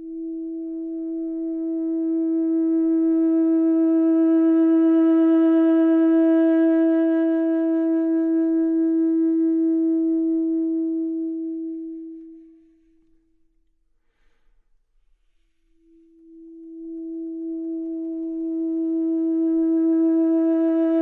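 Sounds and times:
long held music note: 15.6s - 21.0s.

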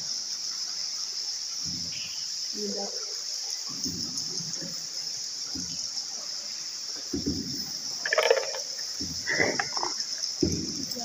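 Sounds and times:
water splashes: 0.0s - 11.0s
bats chirring: 7.6s - 10.4s.

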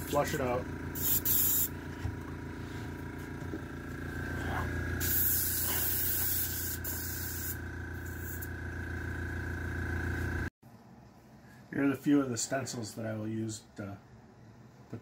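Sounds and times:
motor hum: 0.0s - 10.5s
airbrush spraying hissing bursts: 1.0s - 1.8s, 5.0s - 8.5s.

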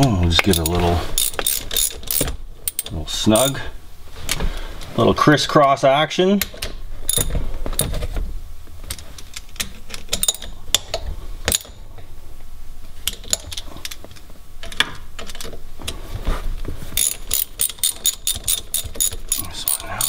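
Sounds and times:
metal clicks and clinks of tools: 0.4s - 3.5s, 10.0s - 10.9s, 17.0s - 20.0s
socket ratchet clicking rapidly: 0.4s - 3.5s, 17.0s - 20.0s.

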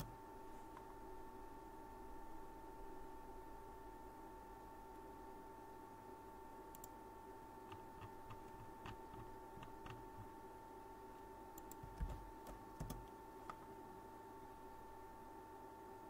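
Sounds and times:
faint electrical whine: 0.0s - 16.0s
computer keyboard and mouse clicks: 6.7s - 7.0s, 7.6s - 10.3s, 11.6s - 13.6s.

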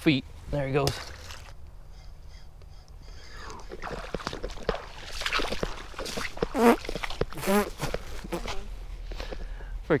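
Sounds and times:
footsteps crunching on dry debris: 3.8s - 9.5s.

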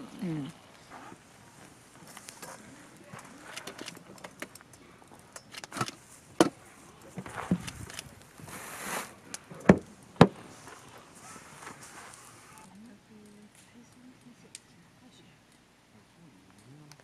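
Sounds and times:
campfire crackling: 0.0s - 17.0s
brief hiss: 8.4s - 9.2s.

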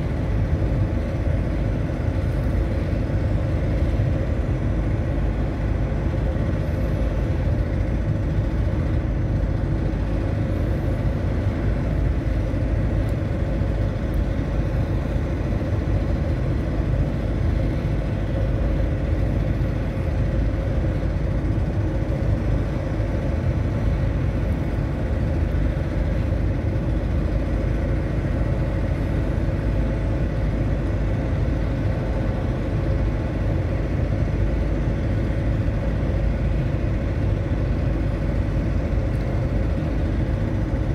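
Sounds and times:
faint constant hum: 0.0s - 40.9s
low engine rumble: 0.0s - 40.9s.

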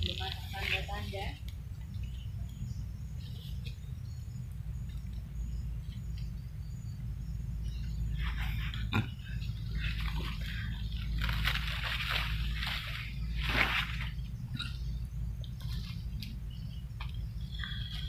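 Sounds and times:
steady low rumble: 0.0s - 18.0s
footsteps rustling through undergrowth: 9.7s - 14.2s.

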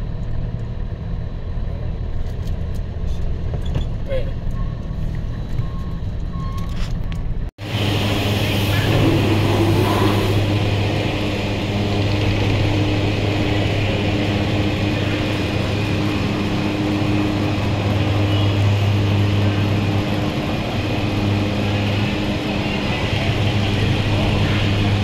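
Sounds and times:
low mechanical motor hum: 7.6s - 25.0s.

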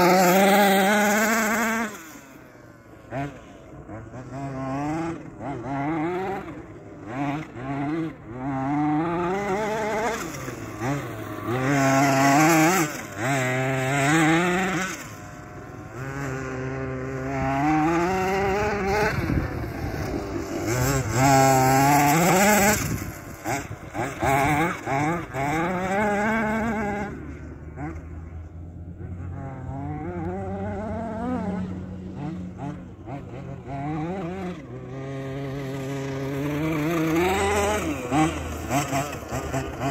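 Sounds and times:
toy buggy motor revving: 0.0s - 39.9s.

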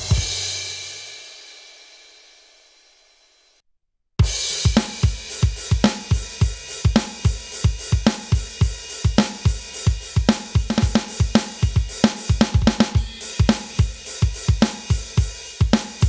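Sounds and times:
electronic drum kit beat: 0.0s - 0.6s, 4.2s - 16.0s.

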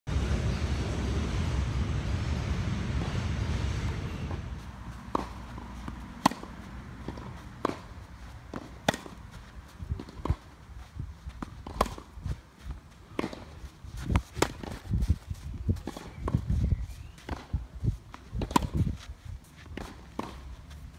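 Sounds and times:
racket striking tennis ball: 4.0s - 10.6s, 11.4s - 12.1s, 13.1s - 14.9s, 17.2s - 18.9s, 19.6s - 20.5s
shoes scuffing on clay: 4.5s - 20.9s.

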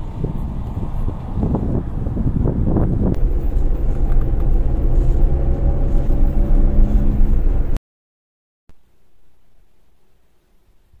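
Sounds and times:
car engine hum: 0.0s - 7.8s
road noise: 0.0s - 7.8s
wind gusts on microphone: 0.0s - 7.8s.

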